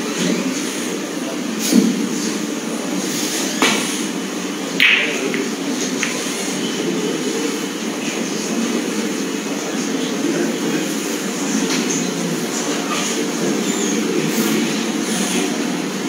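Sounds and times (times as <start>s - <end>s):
low background hum: 2.3s - 12.8s
cue tip clicking cue ball: 4.8s - 6.3s
snooker balls clacking: 4.8s - 7.0s.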